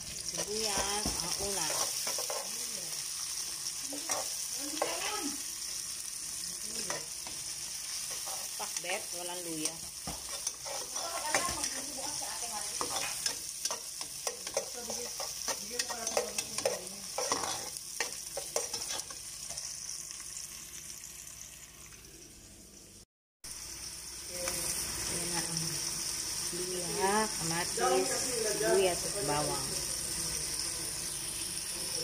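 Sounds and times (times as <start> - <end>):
onions sizzling in oil: 0.0 - 32.0
utensil scraping a metal pot: 8.0 - 9.0, 10.1 - 19.2.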